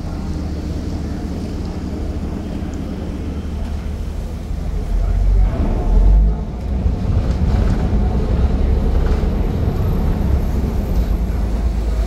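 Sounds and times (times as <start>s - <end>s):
ferry engine running: 0.0s - 12.0s.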